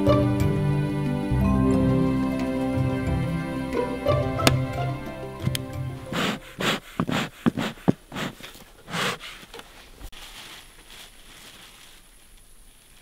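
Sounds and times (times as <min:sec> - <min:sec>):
short noisy puffs: 0:06.1 - 0:09.5.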